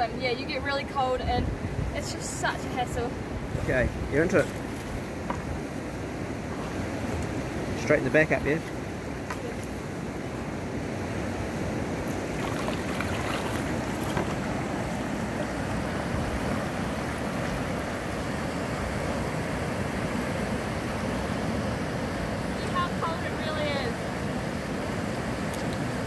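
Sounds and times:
wind buffeting microphone: 0.0 - 26.0
river water rushing: 1.5 - 26.0
paddle strokes splashing: 11.6 - 21.2.

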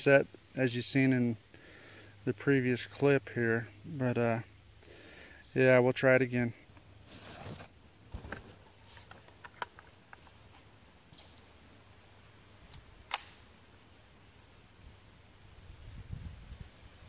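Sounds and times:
rifle handling clicks: 12.7 - 13.5.

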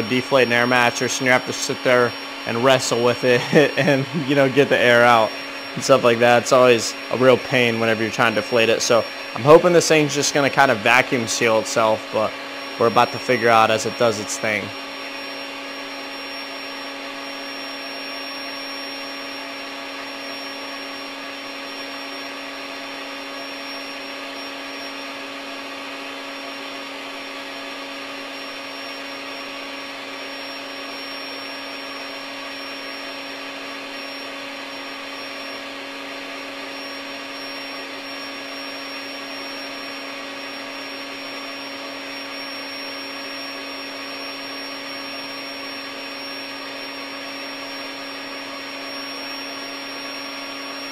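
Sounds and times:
air mattress pump running: 0.0 - 50.9.

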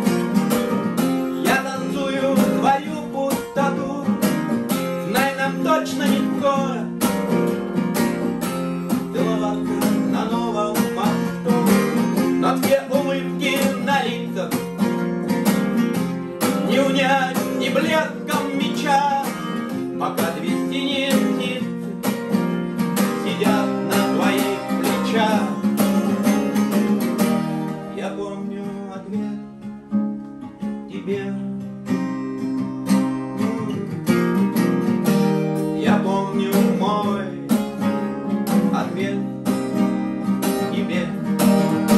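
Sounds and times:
acoustic guitars playing: 0.0 - 41.9
person singing: 1.0 - 7.1, 8.8 - 15.0, 16.1 - 22.2, 23.0 - 29.4, 30.8 - 32.6, 35.6 - 39.8, 40.5 - 41.9.

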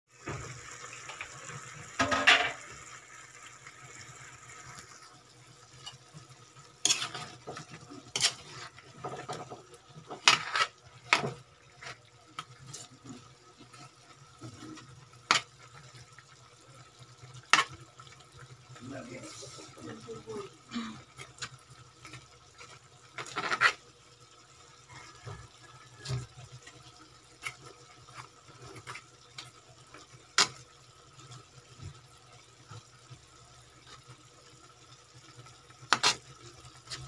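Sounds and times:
food simmering in a wok: 0.1 - 37.0
metal spoon scraping a pan: 5.8 - 13.2, 22.7 - 23.8, 35.9 - 37.0.

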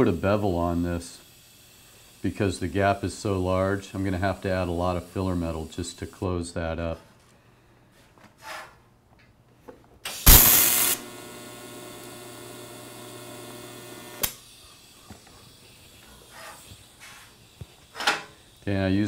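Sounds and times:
welder arc buzzing: 0.0 - 6.3, 10.1 - 19.0
welder click: 10.0 - 14.5.

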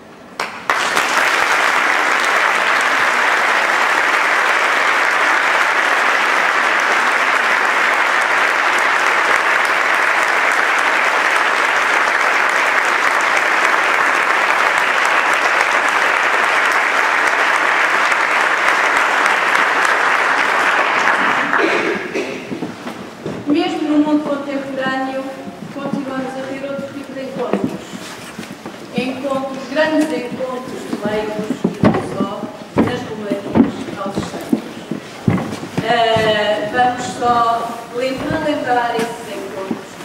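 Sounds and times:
audience applauding: 0.4 - 22.5.

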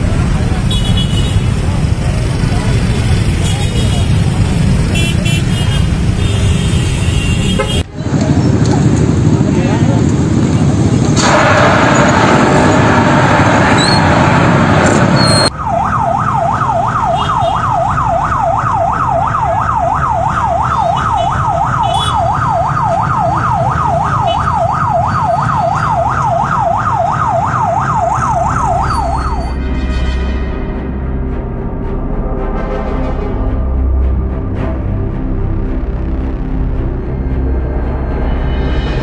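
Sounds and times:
loud rushing noise: 0.0 - 29.7
fire engine siren yelping: 11.2 - 29.6
music: 29.4 - 39.0.

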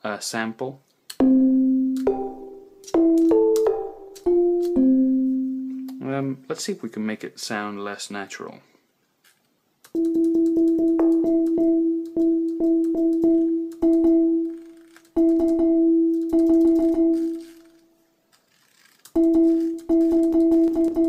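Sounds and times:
synthesizer repeating note: 10.0 - 14.6, 19.2 - 21.0.

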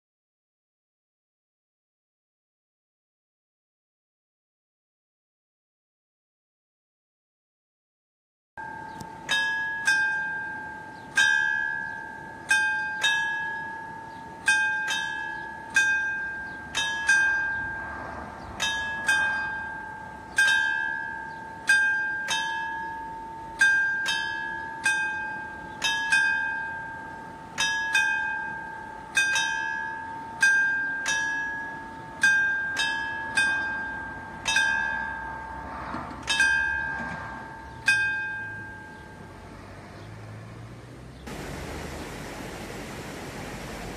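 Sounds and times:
level crossing warning bell: 8.6 - 40.1.

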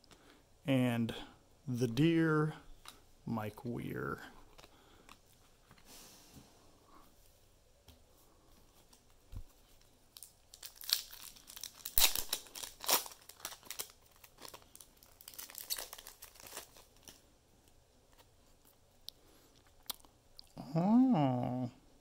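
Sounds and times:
foil wrapper tearing and crinkling: 10.1 - 17.2.

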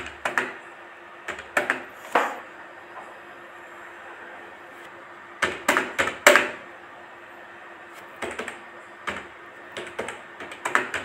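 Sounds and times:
keyboard keys tapping: 8.2 - 11.0.

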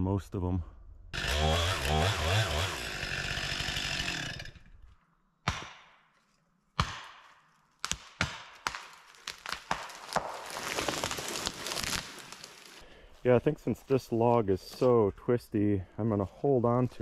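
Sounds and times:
chainsaw running hard: 1.2 - 4.7.

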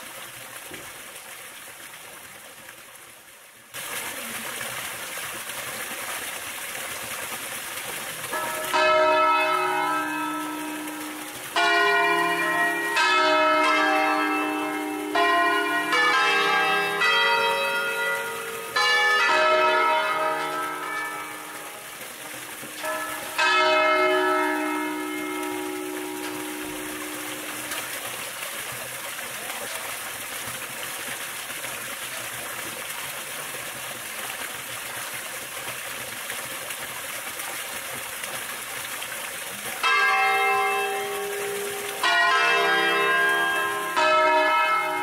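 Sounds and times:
church bells ringing: 8.3 - 27.9, 39.8 - 45.0.

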